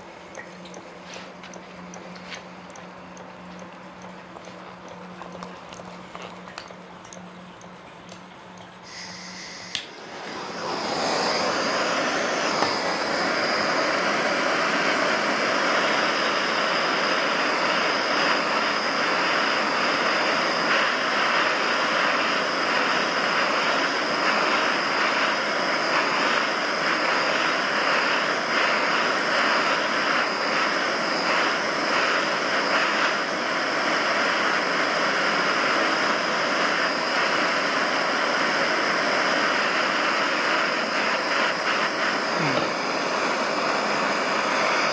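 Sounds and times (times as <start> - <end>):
gas torch flame hissing: 0.0 - 44.9.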